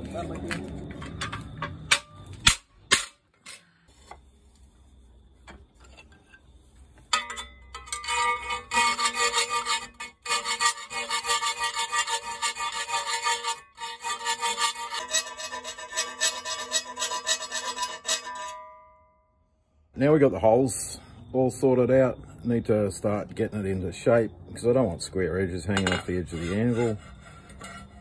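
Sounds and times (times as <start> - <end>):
file rasping on steel plate: 7.8 - 18.6, 25.8 - 28.0.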